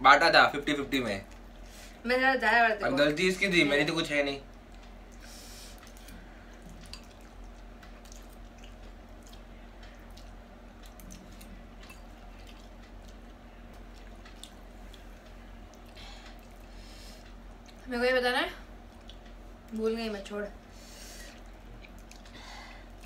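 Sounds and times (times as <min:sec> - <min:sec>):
faint low hum: 0:00.0 - 0:23.0
chewing and slurping noodles: 0:04.6 - 0:17.9, 0:20.8 - 0:23.0.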